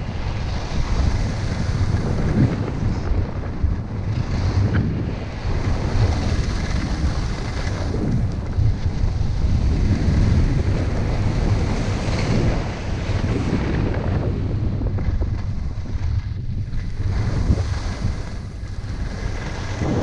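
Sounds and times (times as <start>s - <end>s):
wind buffeting microphone: 0.0s - 20.0s
skis sliding over snow: 0.2s - 20.0s.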